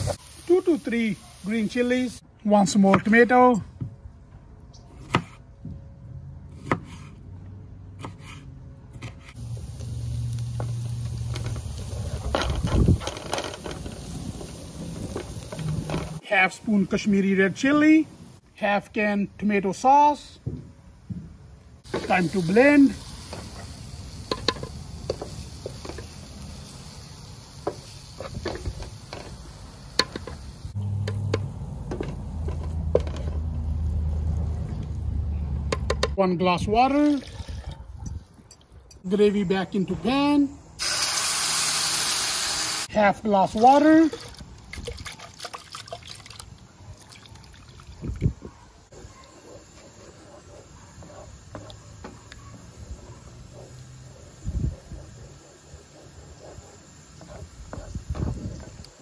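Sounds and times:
vegetables sizzling in a pan: 0.0 - 2.2, 9.4 - 12.3, 13.6 - 16.2, 21.9 - 30.8, 40.8 - 43.0.

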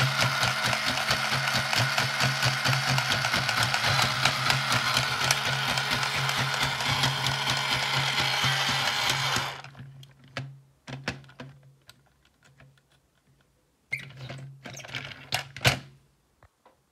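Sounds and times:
toy motor and gears buzzing: 0.0 - 9.7.

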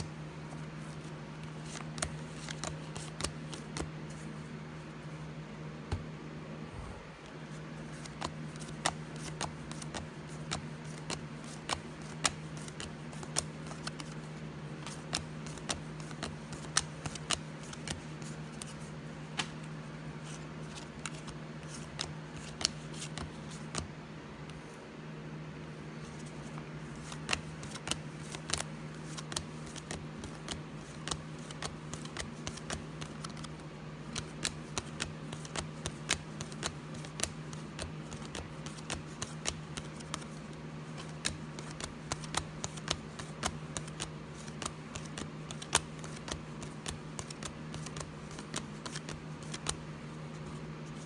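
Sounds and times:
cards snapping off stack: 8.0 - 14.2, 14.8 - 18.0, 18.6 - 19.6, 20.7 - 23.9, 27.0 - 33.5, 34.1 - 40.3, 41.0 - 49.8.

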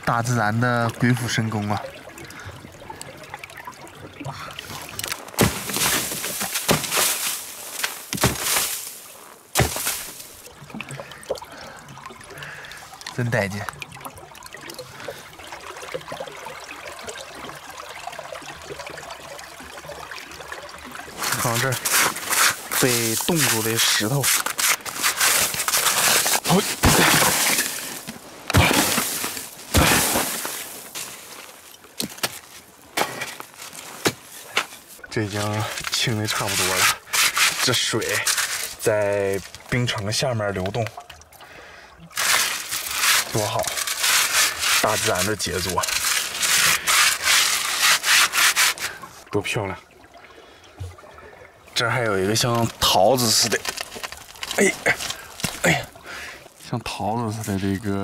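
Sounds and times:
river water trickling under ice: 0.0 - 58.0
axe chopping into snow and ice: 5.4 - 10.3, 24.4 - 27.8, 28.5 - 31.1.

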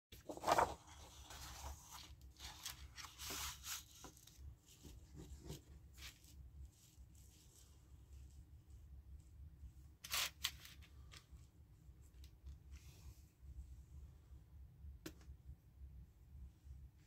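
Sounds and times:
paper rustling and sliding: 0.2 - 7.8.

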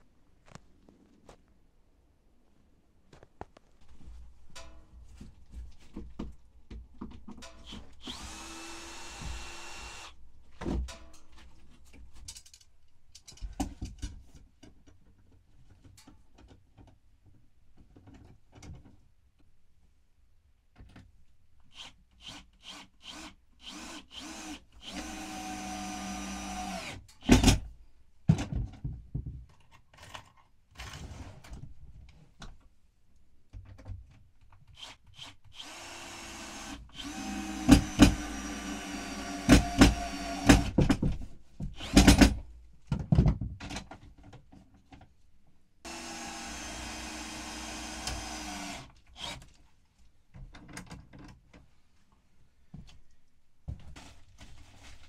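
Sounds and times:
cordless power drill running: 8.0 - 10.2, 22.3 - 27.0, 35.6 - 40.8, 45.9 - 49.4.

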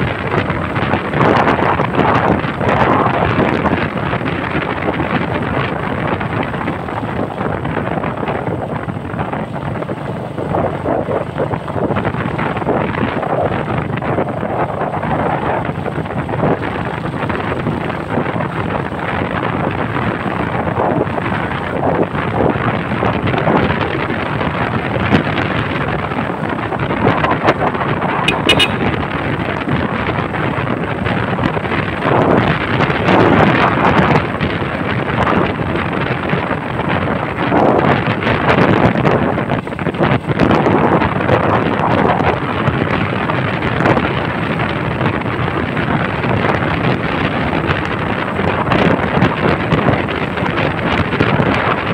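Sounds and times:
road and engine noise: 0.0 - 51.9
wind buffeting microphone: 0.0 - 51.9.

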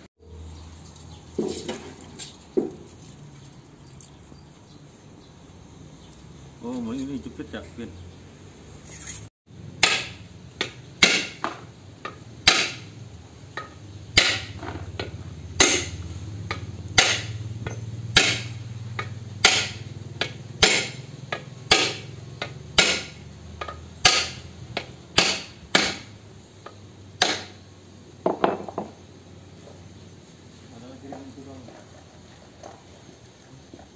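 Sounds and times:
hammer striking steel pipe: 9.8 - 12.9, 13.6 - 27.6.

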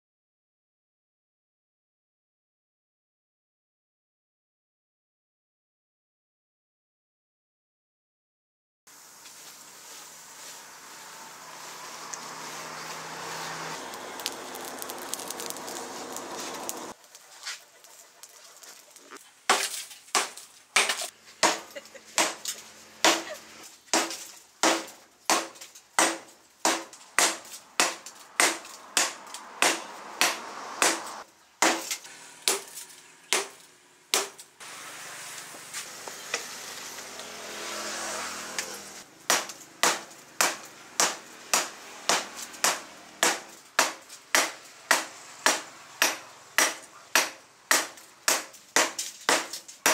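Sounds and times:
forge fire rushing: 11.8 - 17.0
hammer striking steel on anvil: 24.0 - 32.7.

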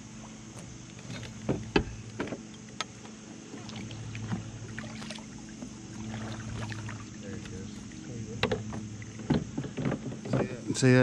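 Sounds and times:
steady low hum: 0.0 - 11.0
water sounds: 3.3 - 11.0
paddle knocking plastic hull: 4.3 - 10.6.

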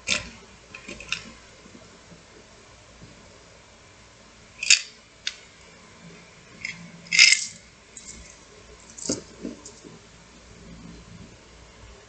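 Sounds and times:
coins clinking: 7.1 - 8.3
coins jangling: 7.1 - 8.3.

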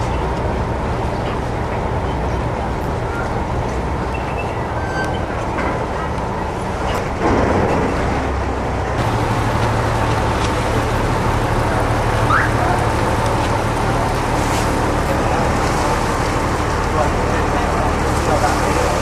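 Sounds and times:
boat engine drone: 0.0 - 19.0
water washing: 6.6 - 19.0.

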